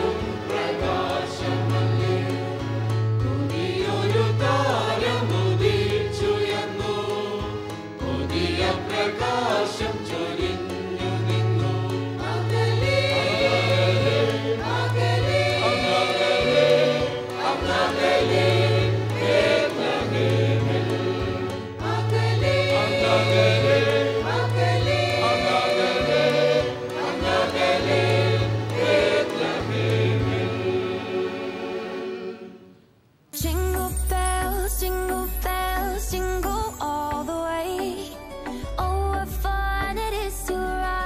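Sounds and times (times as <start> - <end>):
instrumental accompaniment with bass: 0.0 - 32.7, 33.4 - 41.0
choir singing in harmony: 0.0 - 32.9.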